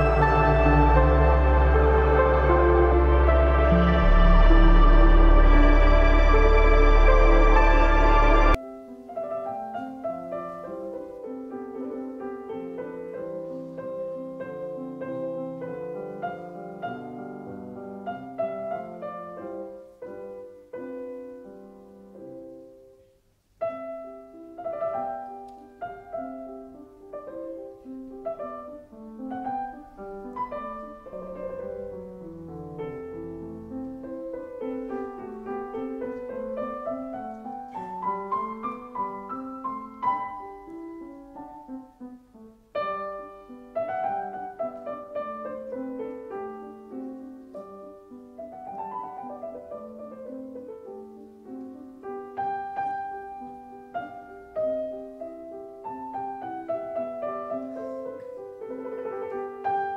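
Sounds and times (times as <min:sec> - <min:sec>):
calm piano music: 0:00.0 - 0:59.9.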